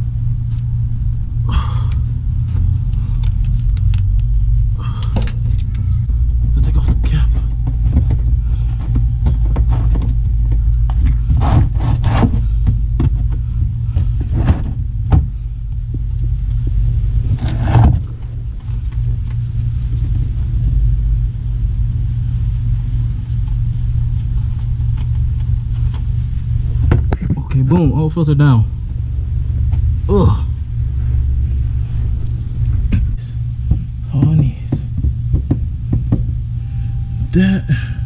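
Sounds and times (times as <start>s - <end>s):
low rumble: 0.0s - 38.0s
tools knocking and scraping: 6.8s - 15.3s.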